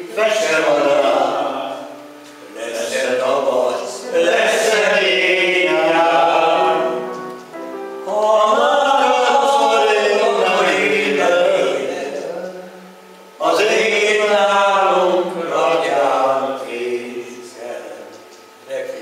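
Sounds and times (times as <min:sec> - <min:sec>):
men singing together: 0:00.0 - 0:07.2, 0:08.1 - 0:18.1.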